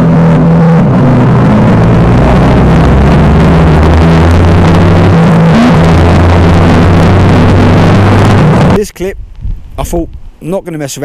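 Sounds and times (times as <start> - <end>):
motorcycle engine running: 0.0 - 8.8
wind rush on microphone: 0.0 - 10.4.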